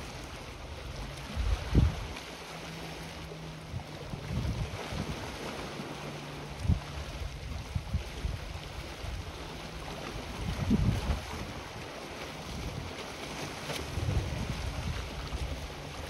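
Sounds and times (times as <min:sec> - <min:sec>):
wind buffeting microphone: 0:00.7 - 0:02.2, 0:03.6 - 0:05.8, 0:06.5 - 0:13.0, 0:13.6 - 0:16.0.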